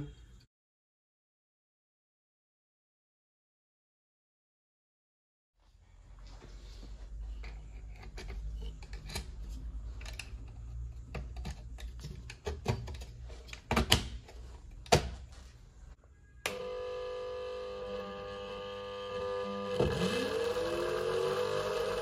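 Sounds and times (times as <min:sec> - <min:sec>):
electric motor humming: 0:16.5 - 0:22.0.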